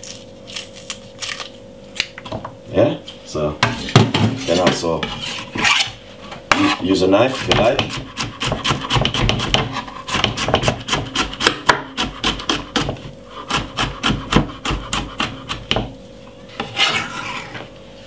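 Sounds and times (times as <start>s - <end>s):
knife chopping on wooden board: 7.4s - 16.0s.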